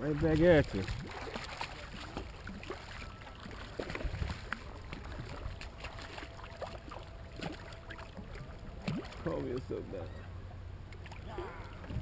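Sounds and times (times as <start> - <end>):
water sloshing: 0.0 - 12.0
fish thrashing and splashing: 0.2 - 9.7.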